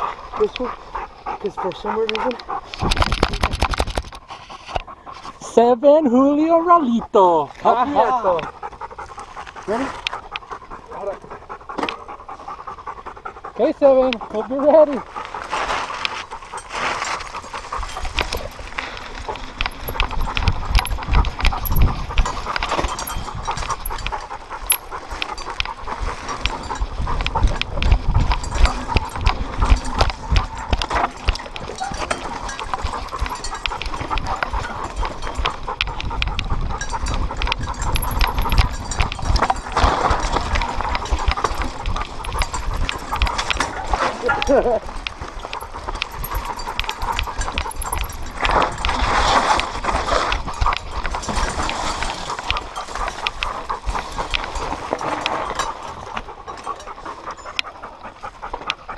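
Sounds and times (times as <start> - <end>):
camera mount rattling: 17.2 - 25.5, 28.3 - 34.8, 37.9 - 39.7, 40.4 - 44.0.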